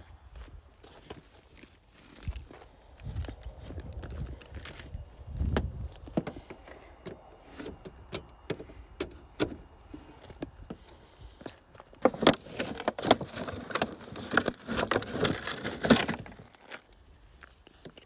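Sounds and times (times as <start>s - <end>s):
plastic hose crunching on gravel: 0.4s - 8.1s, 9.8s - 18.0s
handling clicks and knocks: 5.4s - 9.7s.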